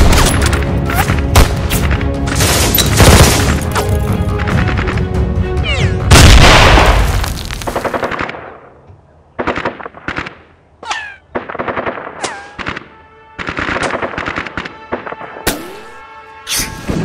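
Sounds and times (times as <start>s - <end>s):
explosion: 6.1s - 7.4s.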